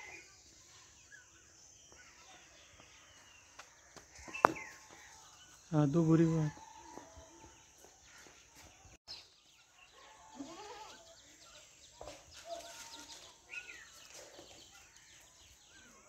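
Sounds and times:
small birds chirping: 0.0 - 16.0
goat bleating: 10.2 - 11.0.

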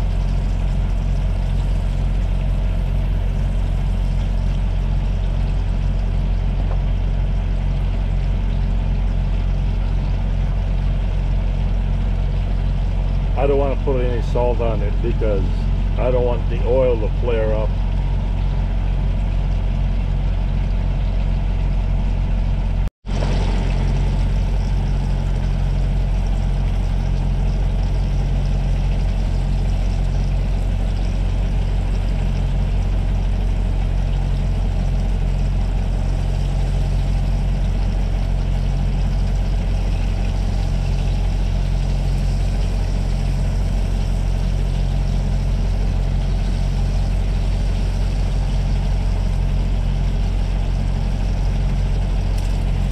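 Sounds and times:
truck engine idling: 0.0 - 52.9.

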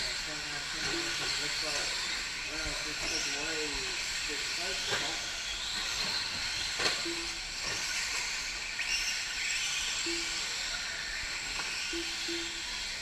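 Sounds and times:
rc truck motors whining: 0.0 - 13.0
short low beeps: 7.0 - 7.4, 10.1 - 10.5, 11.9 - 12.6.

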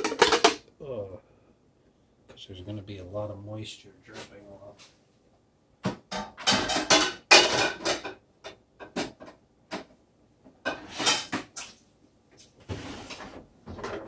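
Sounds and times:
dishes and utensils clinking: 0.0 - 0.6, 6.1 - 9.3.

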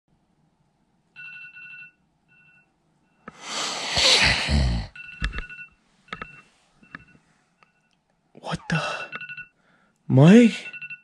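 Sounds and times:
phone ringtone pulses: 10.5 - 11.0.

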